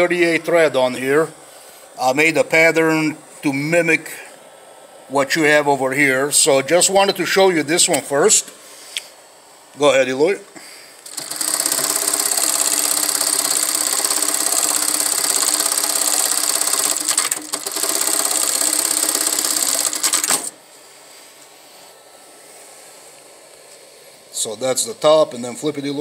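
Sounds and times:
sewing machine stitching: 11.1 - 20.6.

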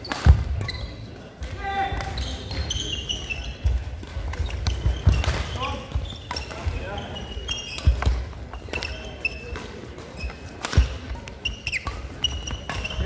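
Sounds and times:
sports shoes squeaking: 0.0 - 13.0
racket hitting shuttlecock: 7.3 - 13.0.

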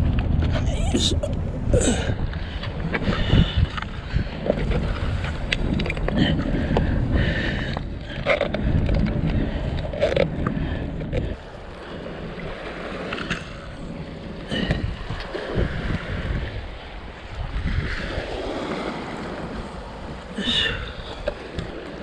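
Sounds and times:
wind buffeting microphone: 0.0 - 22.0
sea water sloshing on shore: 11.3 - 22.0.

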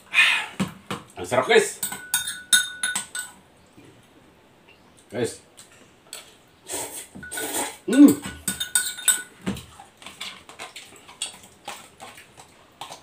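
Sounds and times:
fork clinking against a bowl: 1.8 - 3.4, 7.2 - 9.4.

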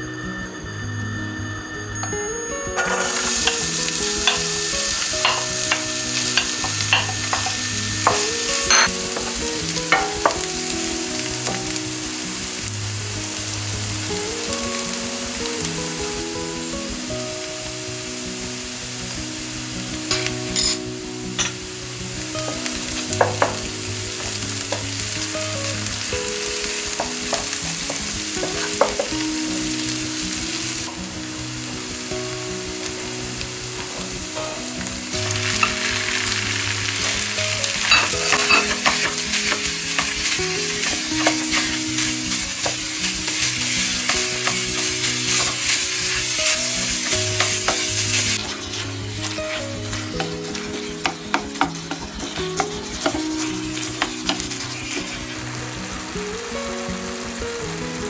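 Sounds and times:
onion sizzling in hot oil: 0.4 - 58.0
spoon tapping and scraping pan: 2.8 - 4.5, 5.2 - 10.5, 23.2 - 24.8, 27.0 - 29.2.

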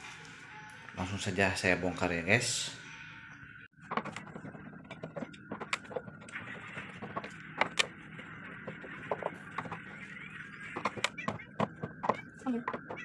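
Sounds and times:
faint steady high tone: 0.1 - 1.2.

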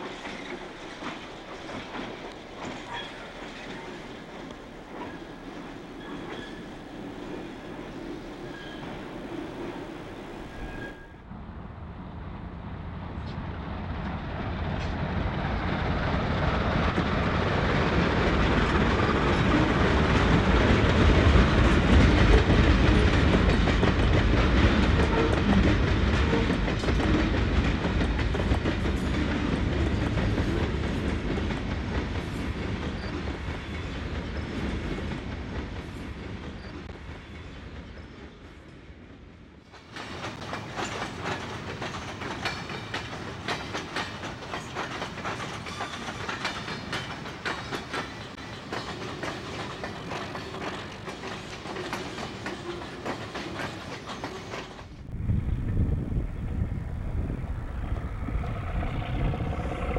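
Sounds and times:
wheels clacking over rail joints: 0.0 - 11.2, 39.7 - 55.0
train rumbling past: 0.0 - 59.9.

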